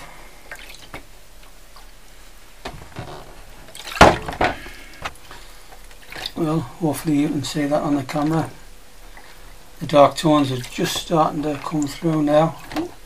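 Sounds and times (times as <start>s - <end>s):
liquid sloshing in a tray: 2.8s - 13.0s.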